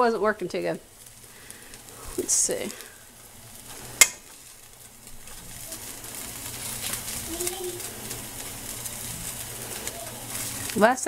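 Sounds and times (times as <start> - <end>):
noodles sizzling in frying pan: 0.0 - 11.0
metal tongs clicking on pan: 4.0 - 4.3.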